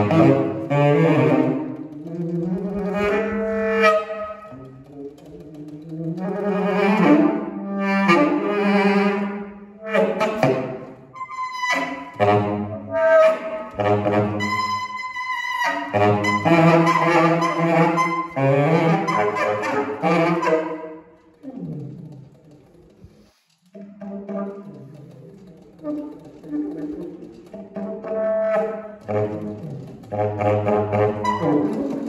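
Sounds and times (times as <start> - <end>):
solo tenor saxophone: 0.0 - 5.3, 6.1 - 20.9, 27.6 - 32.0.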